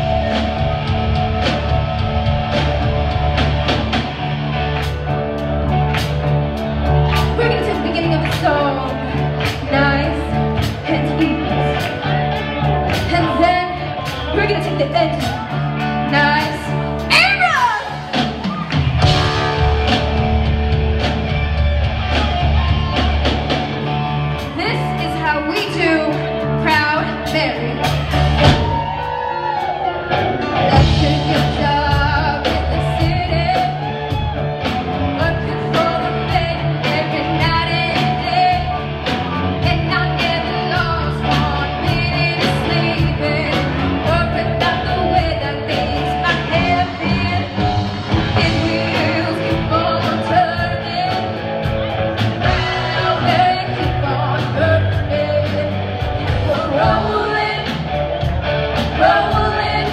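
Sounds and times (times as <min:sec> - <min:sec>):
drum kit: 0:00.0 - 0:59.9
electric guitars: 0:00.0 - 0:59.9
person singing: 0:30.4 - 0:59.9.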